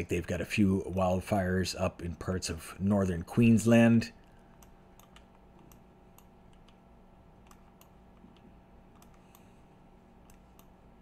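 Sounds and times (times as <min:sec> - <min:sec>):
electrical hum: 0:00.0 - 0:11.0
computer mouse clicks: 0:04.5 - 0:06.8, 0:07.4 - 0:09.5, 0:10.2 - 0:10.8.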